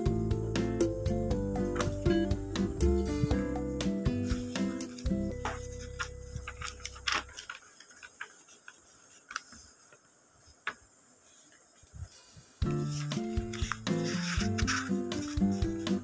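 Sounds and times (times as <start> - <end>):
background music: 0.0 - 7.2, 12.6 - 16.0
paper rustling and clicks: 4.2 - 11.9, 12.6 - 16.0.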